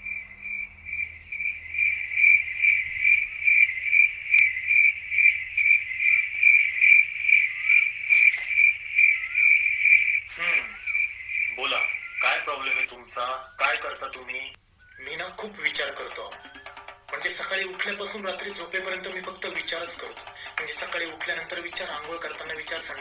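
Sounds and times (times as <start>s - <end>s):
cricket chirping: 0.0s - 13.6s.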